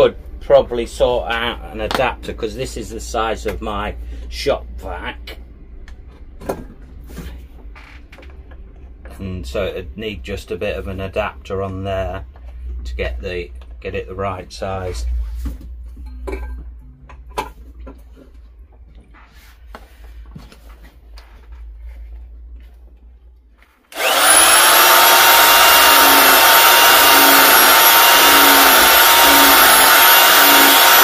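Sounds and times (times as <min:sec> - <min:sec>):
belt sander grinding wood: 0:23.9 - 0:31.0.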